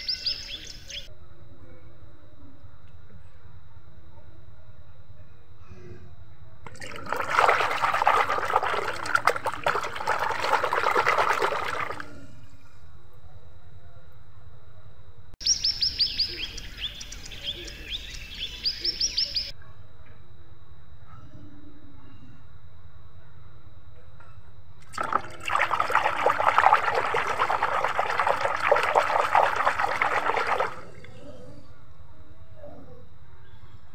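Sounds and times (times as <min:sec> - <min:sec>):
hand splashing in soapy water: 0:06.7 - 0:12.2, 0:24.8 - 0:31.2.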